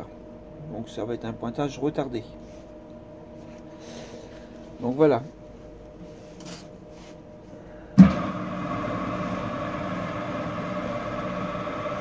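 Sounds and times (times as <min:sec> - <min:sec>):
mixer switch thump: 0:08.0 - 0:08.3
dough mixer motor humming: 0:08.0 - 0:12.0.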